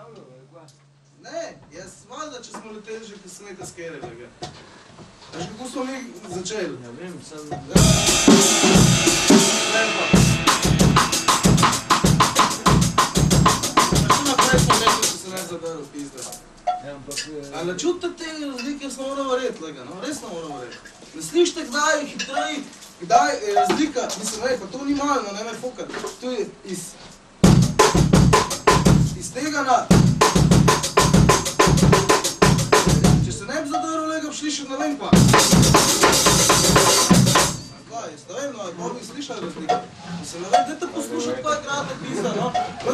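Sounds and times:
bass drum thuds: 7.8s - 15.2s, 27.4s - 29.2s, 29.9s - 33.4s
snare and cymbal strokes: 7.8s - 15.5s, 27.4s - 29.3s, 29.9s - 33.4s, 35.2s - 37.8s.

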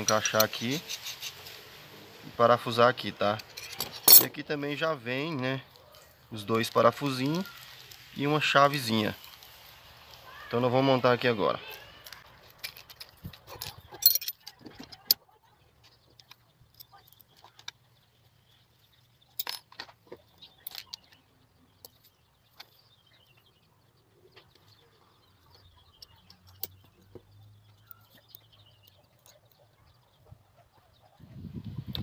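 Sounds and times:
small metal parts clicking: 3.4s - 4.4s, 12.0s - 15.2s, 19.3s - 21.2s.

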